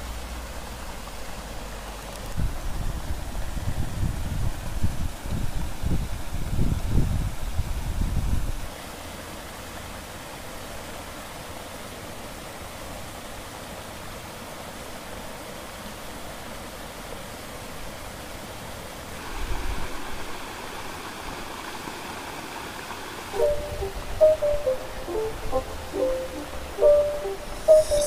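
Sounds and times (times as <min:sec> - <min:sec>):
river water rushing over dam: 0:08.6 - 0:27.6.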